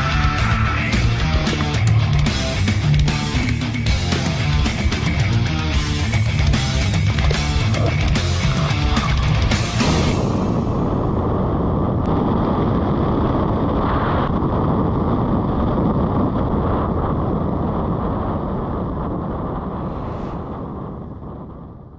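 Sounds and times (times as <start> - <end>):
wind buffeting microphone: 5.8 - 21.9.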